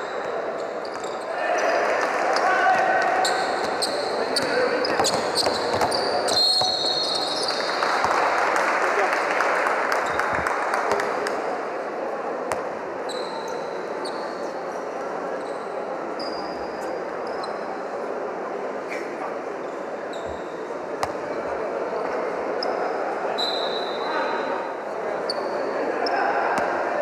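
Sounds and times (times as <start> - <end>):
sneaker squeaks: 0.0 - 1.7, 3.2 - 7.6, 13.0 - 14.6, 15.4 - 17.8, 19.7 - 21.6, 22.6 - 24.4, 25.2 - 26.2
crowd voices humming: 0.0 - 27.0.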